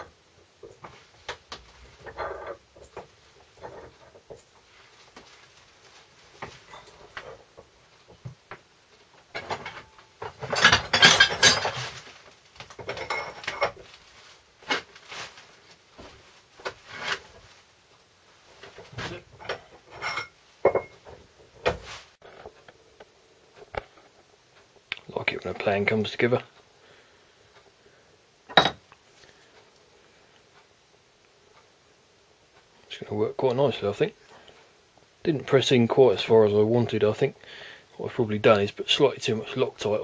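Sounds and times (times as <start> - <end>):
steel parts clinking and knocking: 9.3 - 11.9
metal clatter: 9.3 - 12.0.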